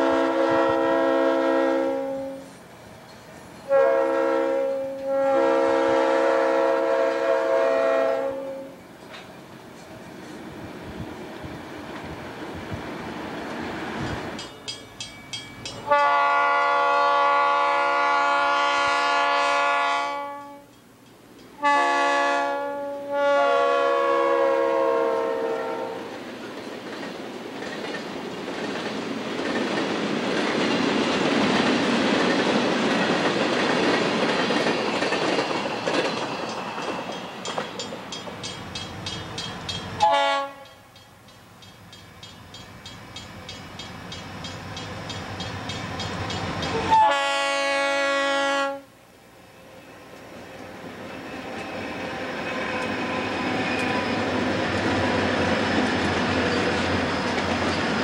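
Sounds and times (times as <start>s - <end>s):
locomotive air horn: 0.0s - 2.6s, 3.7s - 8.8s, 15.8s - 20.7s, 21.6s - 26.2s, 40.0s - 40.9s, 46.7s - 48.9s
freight cars rolling on rails: 8.8s - 16.0s, 26.1s - 47.2s, 49.6s - 58.0s
railroad crossing bell ringing: 14.0s - 16.1s, 34.9s - 46.9s.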